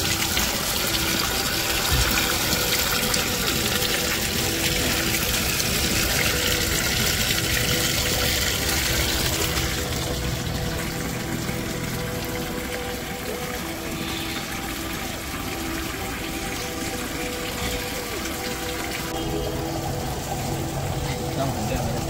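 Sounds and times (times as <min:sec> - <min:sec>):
water running: 0:00.0 - 0:22.0.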